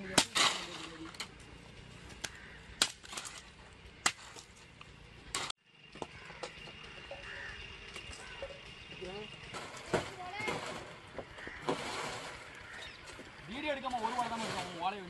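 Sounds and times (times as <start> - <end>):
blade chopping dry palm fronds: 0.0 - 1.4, 2.1 - 4.6.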